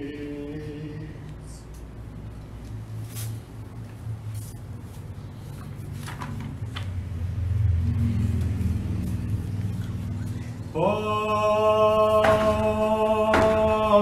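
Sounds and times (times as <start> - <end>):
men chanting a drone: 10.7 - 14.0.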